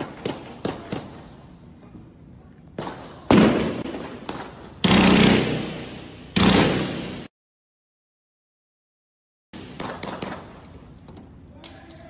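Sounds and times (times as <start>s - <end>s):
guns firing blanks: 2.8s - 7.3s.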